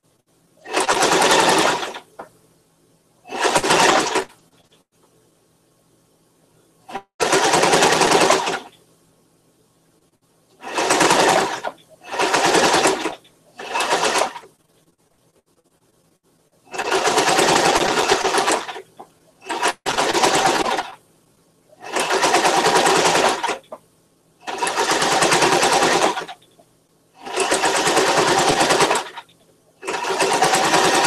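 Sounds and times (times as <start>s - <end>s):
sewing machine stitching: 0.6s - 2.3s, 3.3s - 4.8s, 6.9s - 8.8s, 10.6s - 14.6s, 16.7s - 21.0s, 21.8s - 23.8s, 24.4s - 26.5s, 27.2s - 31.0s.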